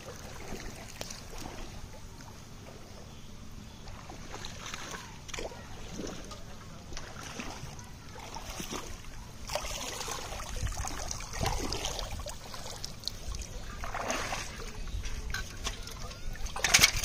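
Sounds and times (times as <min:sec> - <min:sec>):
river water splashing: 0:00.0 - 0:17.0
water running off bamboo: 0:09.5 - 0:17.0.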